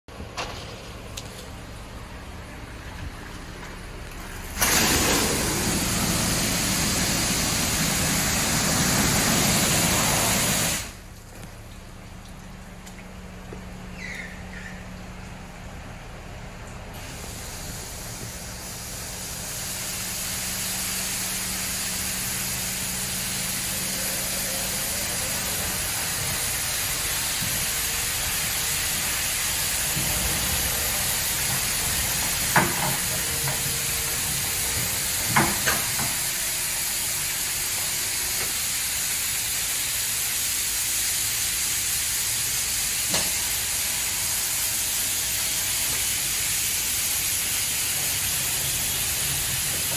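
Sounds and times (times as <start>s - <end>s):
car wash water spray hiss: 0.1s - 49.9s.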